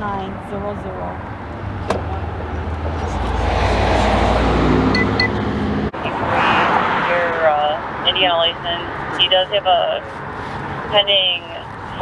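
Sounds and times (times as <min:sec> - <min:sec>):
car driving past: 0:02.0 - 0:08.0.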